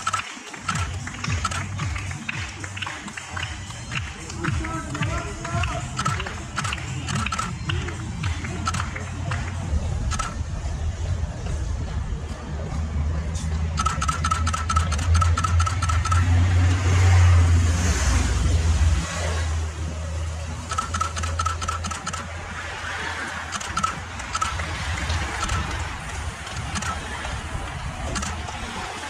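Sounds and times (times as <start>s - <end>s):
rapid ticking or rattling: 0.0s - 10.5s, 13.7s - 16.4s, 20.6s - 22.6s, 23.3s - 29.0s
vehicle engine running: 0.0s - 29.0s.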